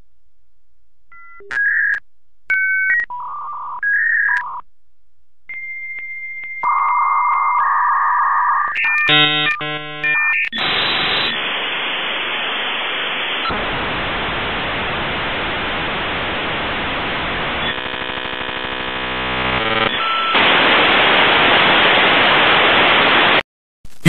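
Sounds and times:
modem pulsing buzzing tones: 6.6 - 21.1
modem static hiss: 10.6 - 24.0.

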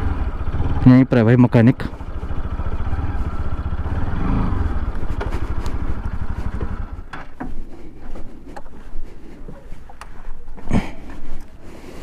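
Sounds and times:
motorcycle engine at low revs: 0.0 - 11.6.

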